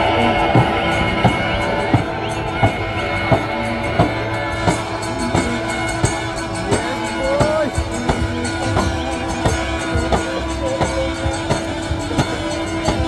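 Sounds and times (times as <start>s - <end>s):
music with steady beat: 0.0s - 13.0s.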